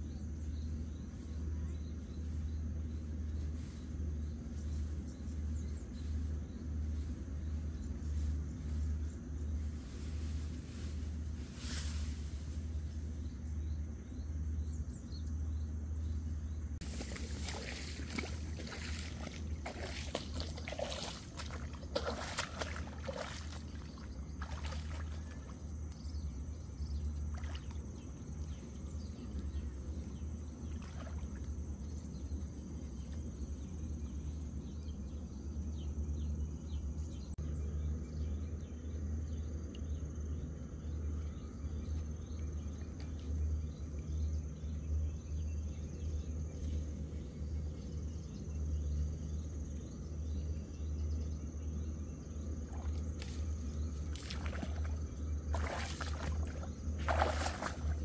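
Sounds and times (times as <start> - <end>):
insect buzz: 0.0 - 58.0
low hum: 0.0 - 58.0
water splashing and sloshing: 16.8 - 34.4, 52.3 - 58.0.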